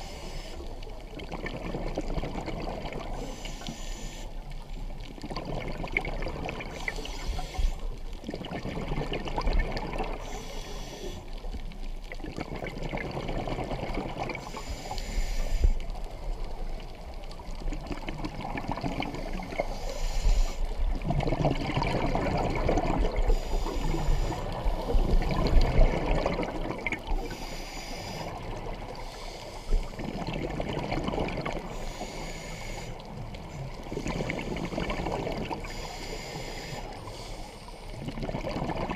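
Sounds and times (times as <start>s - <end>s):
regulator inhale hiss: 0.0s - 0.8s, 3.1s - 4.6s, 6.7s - 8.0s, 10.2s - 11.5s, 14.4s - 16.2s, 19.1s - 20.8s, 23.2s - 25.4s, 27.1s - 30.0s, 31.6s - 33.2s, 33.8s - 38.0s
exhaled bubbles rushing: 1.2s - 3.2s, 5.2s - 6.8s, 8.2s - 10.2s, 12.2s - 14.4s, 17.7s - 19.6s, 20.9s - 27.3s, 30.0s - 31.7s, 38.0s - 38.9s.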